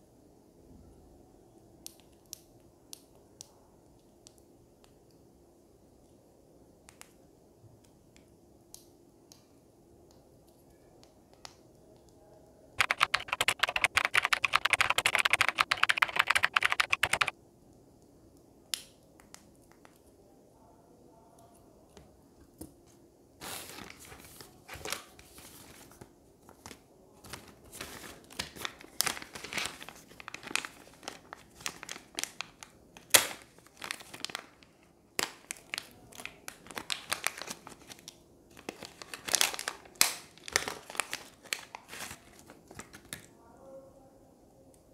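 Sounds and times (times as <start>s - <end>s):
rapid clicking: 12.8s - 17.3s
plastic bags crinkling: 26.5s - 43.3s.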